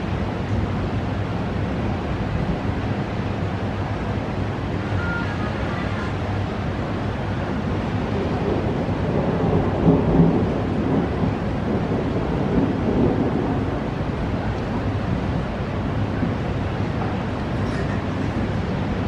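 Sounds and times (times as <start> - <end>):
rain: 0.0 - 19.0
thunder rumbling: 6.1 - 19.0.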